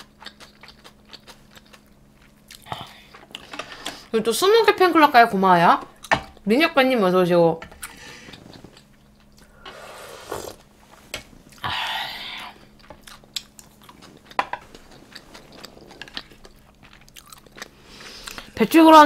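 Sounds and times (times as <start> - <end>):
person chewing food: 0.0 - 4.0, 7.8 - 9.6, 11.4 - 18.6.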